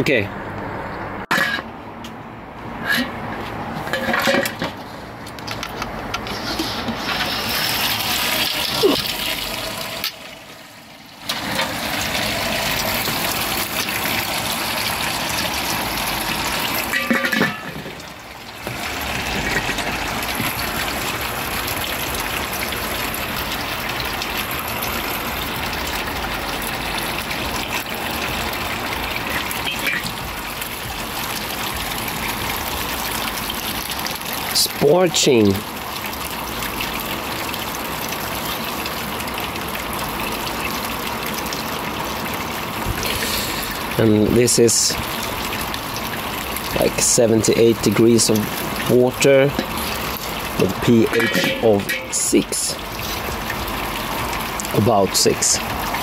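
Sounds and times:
metal lid clanks: 1.3s - 1.7s, 3.9s - 4.8s, 16.9s - 18.0s, 29.6s - 30.2s, 51.0s - 52.2s
liquid pouring and splashing: 6.1s - 56.0s.

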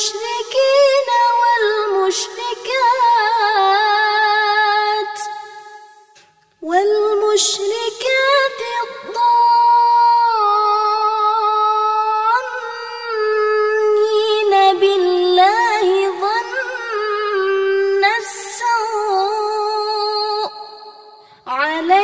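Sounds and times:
woman chanting melodically: 21.5s - 22.0s.

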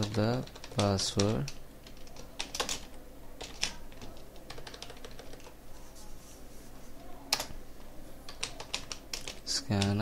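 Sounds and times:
typing on computer keyboard: 0.0s - 5.6s, 8.3s - 10.0s.

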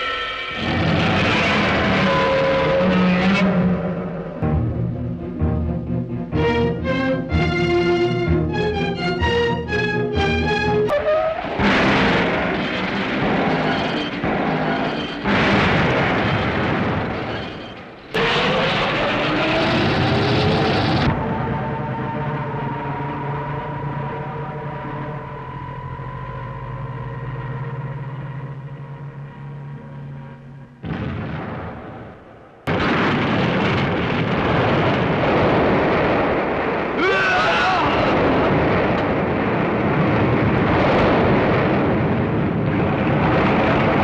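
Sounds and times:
loud explosion: 0.0s - 3.0s, 11.4s - 22.6s, 30.8s - 44.0s
rumble: 0.0s - 44.0s.

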